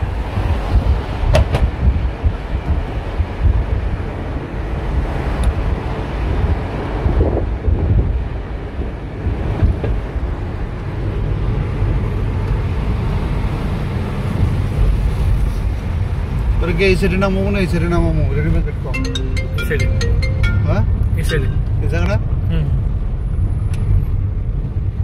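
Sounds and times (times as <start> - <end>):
wind buffeting microphone: 0.0 - 11.2
moving vehicle noise: 0.0 - 25.0.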